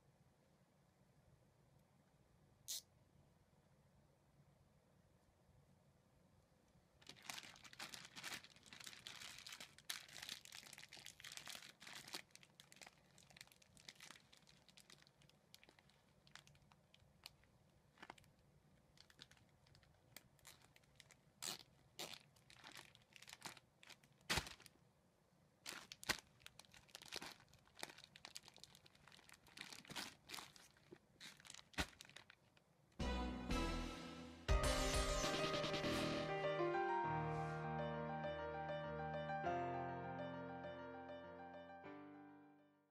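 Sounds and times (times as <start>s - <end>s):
plastic bags crinkling: 7.0s - 24.8s, 25.6s - 32.7s
music: 33.0s - 42.9s.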